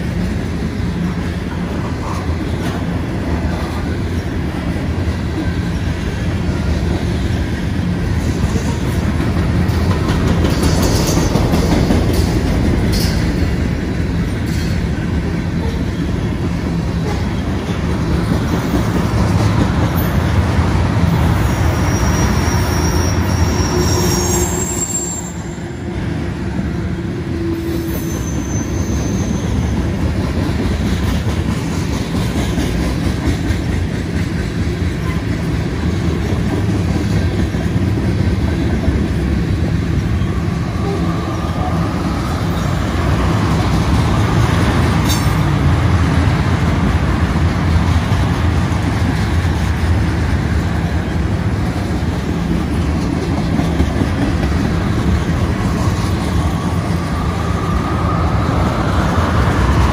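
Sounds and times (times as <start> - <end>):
train wheels rumbling on rails: 0.0 - 59.9
high wheel squeals: 21.4 - 25.8, 27.5 - 29.8.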